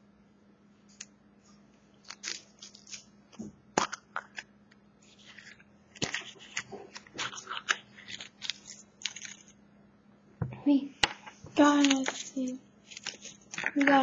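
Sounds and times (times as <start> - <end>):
chocolate egg breaking: 2.0 - 3.1, 3.7 - 4.5, 7.0 - 9.5
foil wrapper crinkling: 2.0 - 3.1, 5.2 - 9.5, 11.6 - 14.0.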